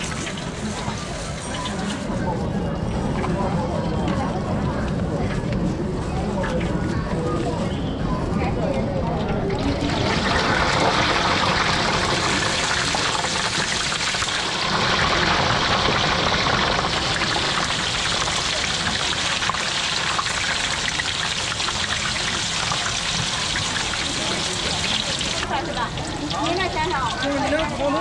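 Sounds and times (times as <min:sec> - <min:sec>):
tofu deep-frying in oil: 0:00.0 - 0:02.1, 0:09.5 - 0:28.0.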